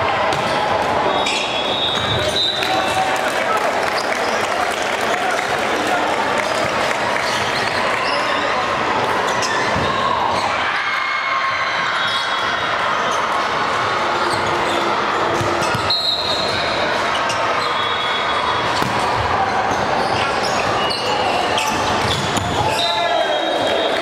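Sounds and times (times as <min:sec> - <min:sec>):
volleyballs hit and bouncing: 0:00.0 - 0:02.9, 0:15.3 - 0:17.0, 0:18.6 - 0:20.9, 0:21.5 - 0:22.9
murmur of voices: 0:00.0 - 0:24.0.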